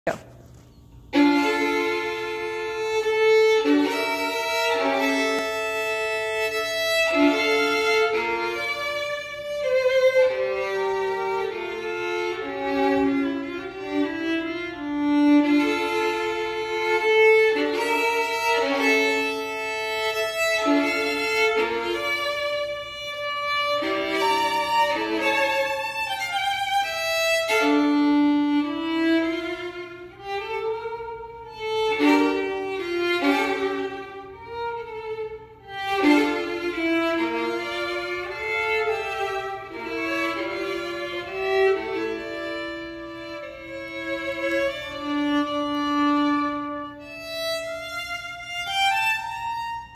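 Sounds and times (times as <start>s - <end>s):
solo violin melody: 1.0s - 49.9s.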